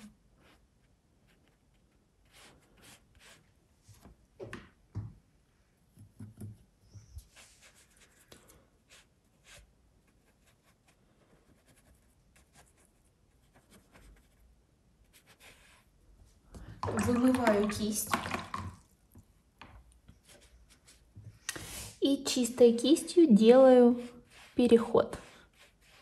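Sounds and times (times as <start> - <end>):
paintbrush swishing on paper: 2.2 - 3.5, 7.1 - 16.0, 23.8 - 26.0.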